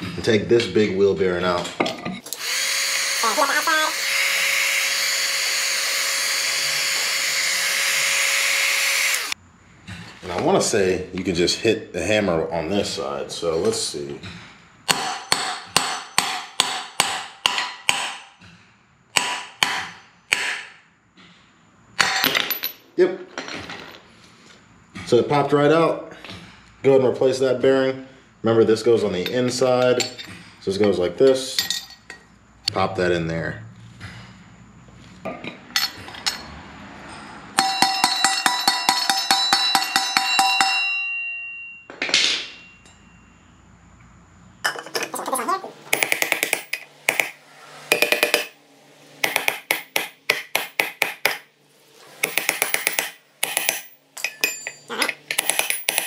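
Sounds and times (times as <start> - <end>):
hammer strikes on metal: 14.8 - 18.4, 19.1 - 20.8, 37.5 - 42.7, 45.9 - 48.6, 49.2 - 51.5, 52.2 - 56.0
hammer tapping on metal: 37.6 - 41.7, 45.9 - 48.6, 49.2 - 51.4.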